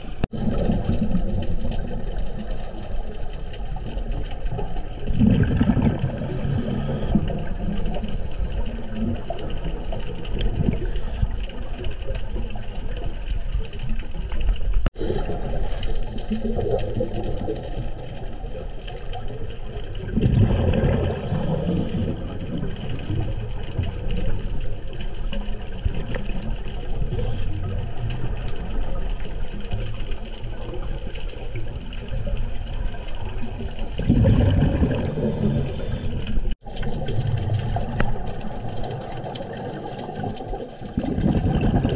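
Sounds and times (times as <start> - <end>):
regulator bubbles gurgling: 0.0 - 41.9
steady underwater rush: 0.0 - 41.9.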